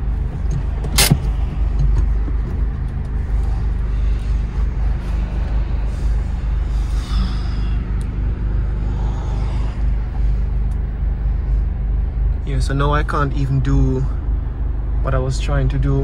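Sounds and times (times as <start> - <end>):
car exhaust drone: 0.0 - 16.0.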